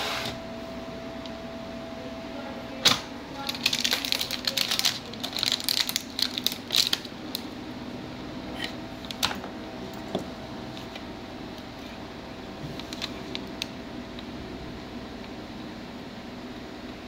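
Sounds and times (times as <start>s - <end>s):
steady low hum: 0.0s - 17.0s
plastic clicks and crinkling: 2.9s - 7.5s, 12.8s - 13.7s.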